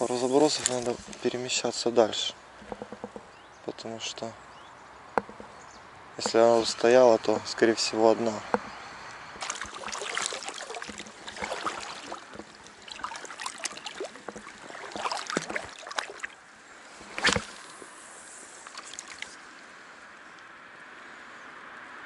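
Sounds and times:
water sloshing and trickling: 0.0s - 3.8s, 8.3s - 19.7s
steady hiss: 16.5s - 20.4s.

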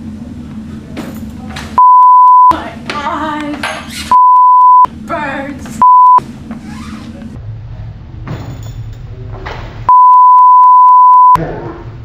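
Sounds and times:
censor bleeps: 1.8s - 2.5s, 4.1s - 4.9s, 5.8s - 6.2s, 9.9s - 11.4s.

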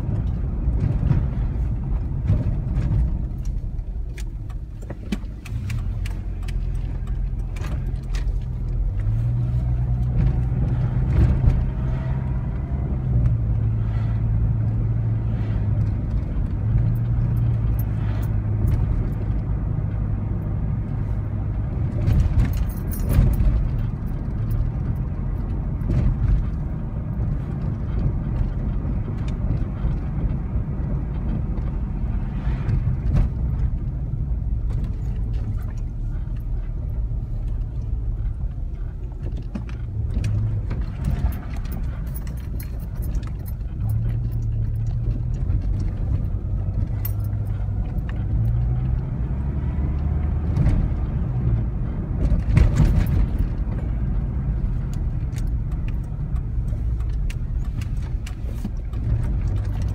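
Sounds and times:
engine and tyre rumble: 0.0s - 59.9s
clicks and rattles: 52.2s - 59.9s.

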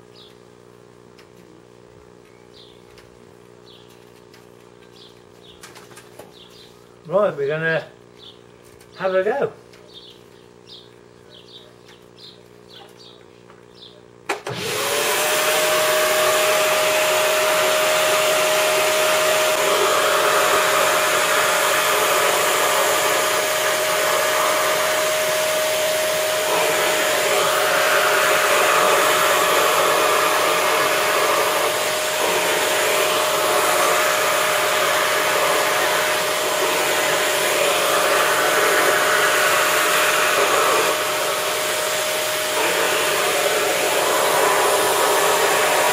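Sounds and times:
vacuum cleaner whining: 14.3s - 45.9s.

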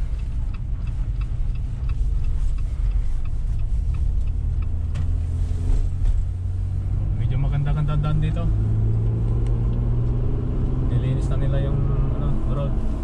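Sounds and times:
faint light ticks: 0.0s - 5.6s
car engine and tyres rumbling: 0.0s - 13.0s.

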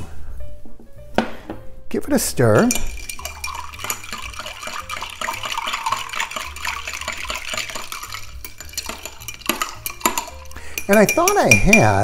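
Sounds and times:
spoon stirring ice in glass: 2.6s - 12.0s.

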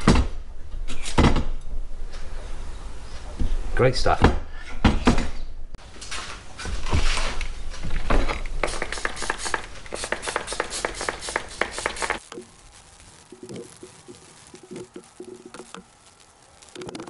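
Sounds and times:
scratchy rustling: 8.6s - 17.0s.

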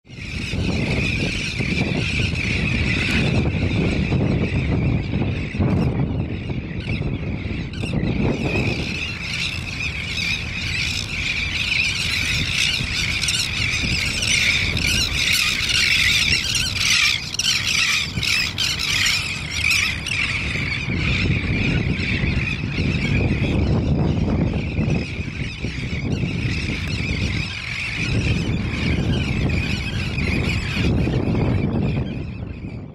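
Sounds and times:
terns squawking: 6.7s - 32.2s.

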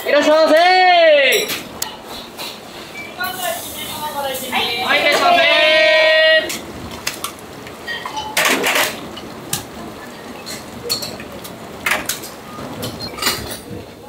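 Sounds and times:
dishes and pots clattering: 7.8s - 13.9s.

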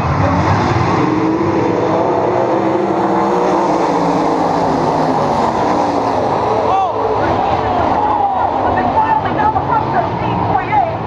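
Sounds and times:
race car engines roaring: 0.0s - 11.0s.

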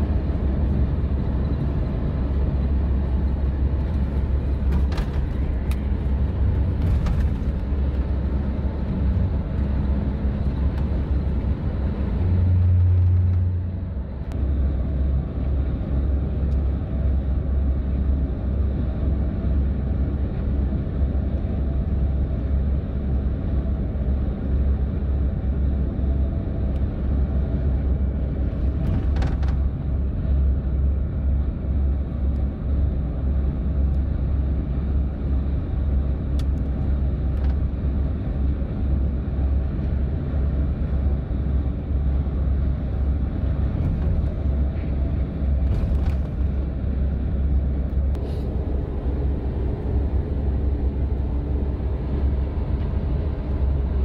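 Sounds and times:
bus engine and road drone: 0.0s - 54.0s.

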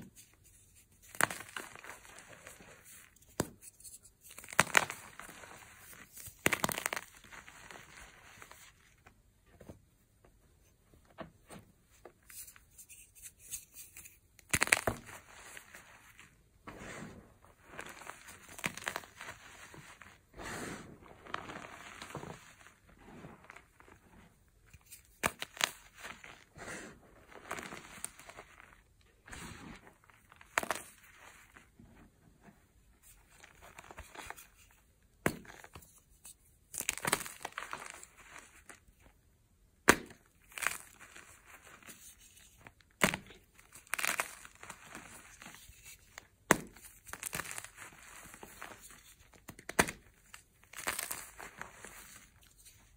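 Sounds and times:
chalk crunching in hands: 50.6s - 52.7s.

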